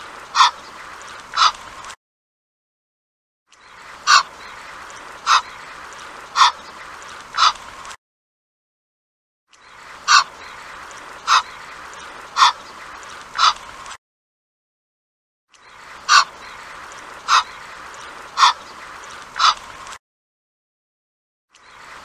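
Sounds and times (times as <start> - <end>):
goose calling: 0.3 - 1.7, 4.0 - 5.7, 6.3 - 6.7, 7.3 - 7.6, 10.0 - 12.7, 13.3 - 13.6, 16.1 - 16.6, 17.2 - 18.8, 19.4 - 19.7.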